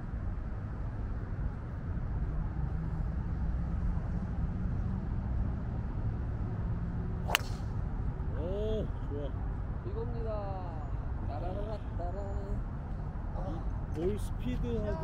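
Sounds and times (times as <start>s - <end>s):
golf club striking ball: 7.2s - 7.8s.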